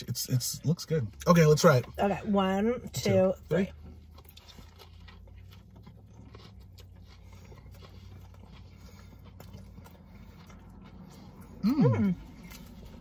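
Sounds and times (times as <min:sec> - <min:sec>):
people chewing: 0:02.8 - 0:13.0.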